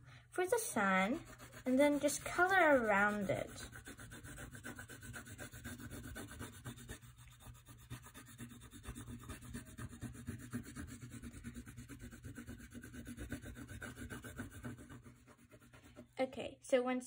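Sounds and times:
oil pastel rubbing on paper: 0.4s - 16.2s.

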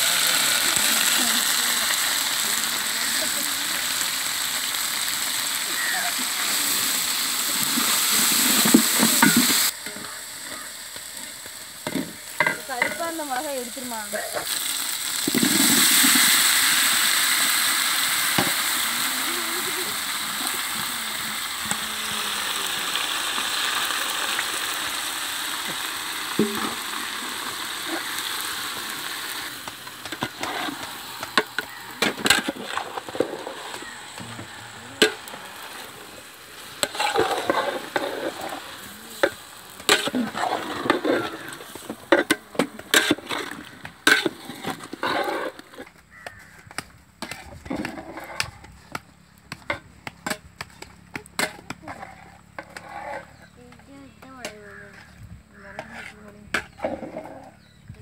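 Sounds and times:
tomatoes sizzling in a pot: 0.0s - 58.0s
metal ladle scraping a pot: 8.5s - 10.0s, 30.0s - 34.2s, 36.8s - 38.6s, 39.2s - 45.9s, 51.4s - 53.5s, 55.6s - 57.7s.

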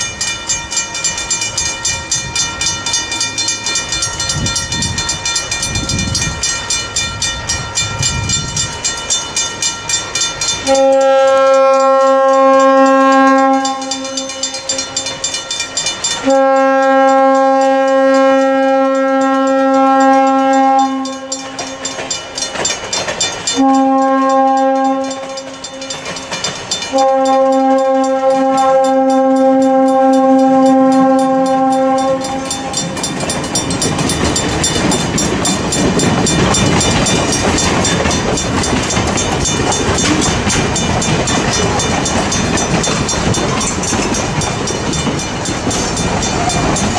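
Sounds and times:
crossing bell ringing rapidly: 0.0s - 46.9s
steam whistle blasts: 10.6s - 15.0s, 16.2s - 21.4s, 23.6s - 25.4s, 26.9s - 32.8s.

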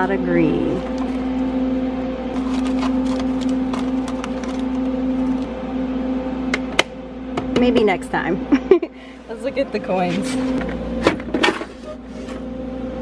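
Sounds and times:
vending machine electrical hum: 0.0s - 13.0s
paper bills rustling: 2.4s - 4.9s.

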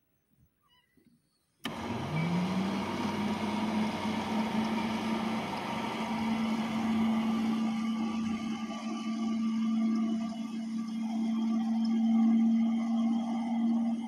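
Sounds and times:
carpet extractor motors running: 1.6s - 14.0s.

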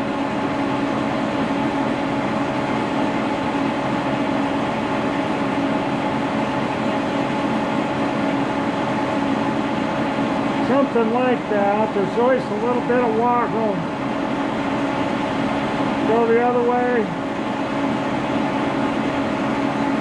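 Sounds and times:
milling machine humming: 0.0s - 20.0s.

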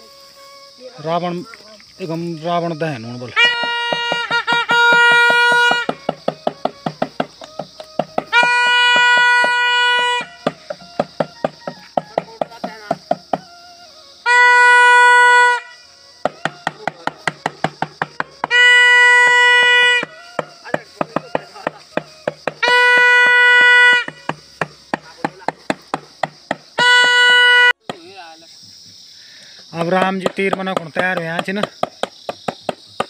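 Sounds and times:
toy trumpet blasts: 3.3s - 7.1s, 7.8s - 12.0s, 14.2s - 16.4s, 18.4s - 20.5s, 22.0s - 24.4s, 26.7s - 27.8s
stick tapping on a plate: 3.4s - 9.6s.

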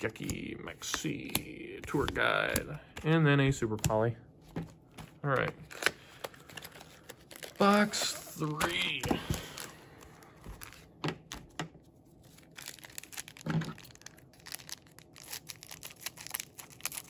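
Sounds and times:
foil packs crinkling and tearing: 5.7s - 10.9s, 12.2s - 17.0s.

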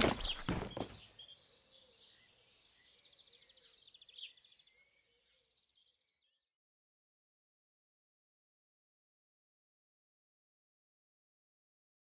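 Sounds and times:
faint birds chirping: 0.0s - 6.6s.

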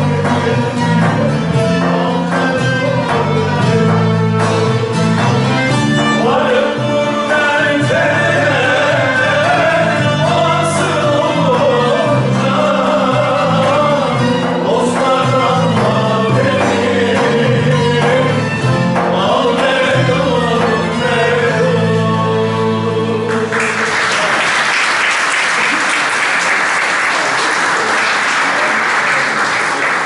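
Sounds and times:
people singing: 0.0s - 24.3s
long-necked lutes playing: 0.0s - 24.5s
audience applause: 23.3s - 30.0s.

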